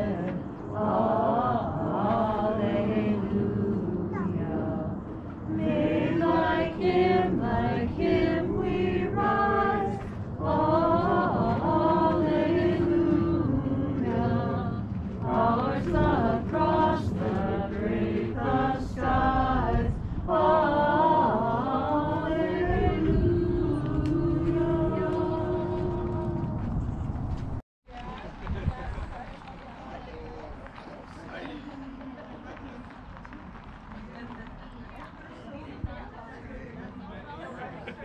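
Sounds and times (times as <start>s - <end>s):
group singing a hymn: 0.0s - 27.1s.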